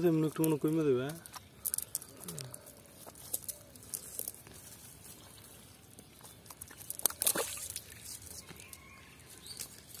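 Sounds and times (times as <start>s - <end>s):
fish slapping on wet mud: 6.2s - 8.8s.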